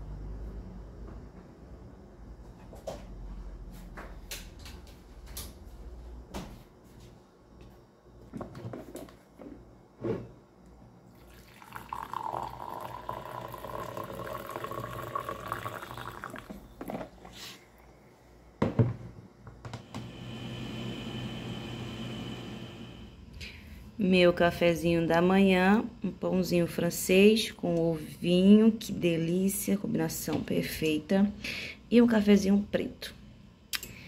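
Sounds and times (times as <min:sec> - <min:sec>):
coffee pouring into glass mug: 0:11.1 - 0:17.3.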